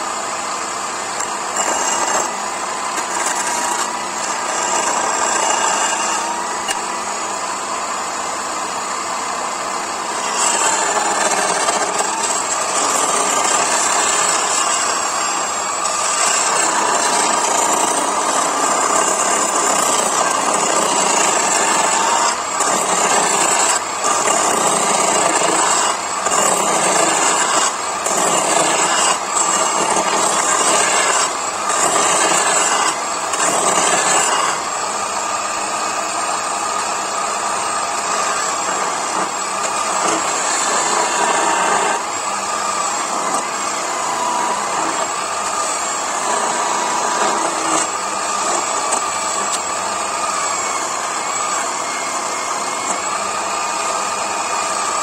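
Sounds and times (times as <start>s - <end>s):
chisel cutting spinning wood: 0.0s - 55.0s
lathe motor hum: 0.0s - 55.0s.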